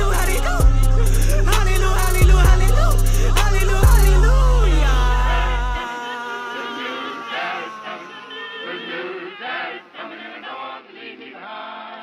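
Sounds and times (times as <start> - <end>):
heavy bass beat: 0.0 - 5.8
operatic singing voice: 0.0 - 12.0.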